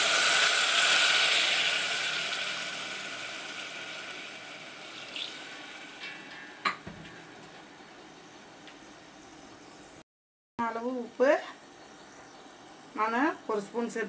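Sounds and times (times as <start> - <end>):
water sizzling in hot oil: 0.0 - 6.7.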